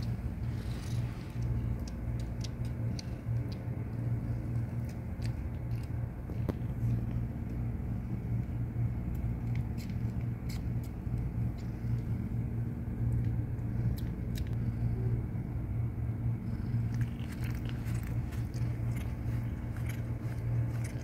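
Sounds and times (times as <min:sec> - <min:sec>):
cat purring: 0:00.0 - 0:05.1
kittens suckling clicks: 0:00.0 - 0:12.2, 0:13.1 - 0:14.7, 0:16.6 - 0:21.0.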